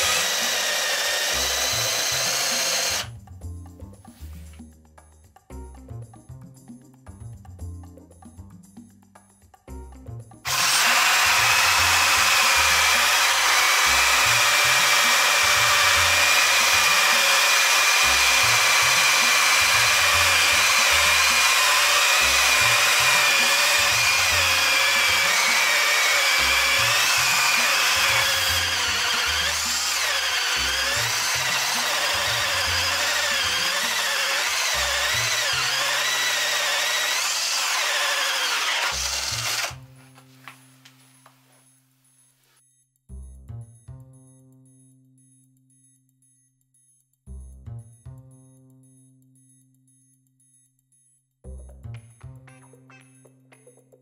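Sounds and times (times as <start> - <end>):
drill motor whine: 0.0 - 3.1, 10.5 - 39.8
hole saw grinding wood: 0.0 - 3.1, 10.4 - 39.8.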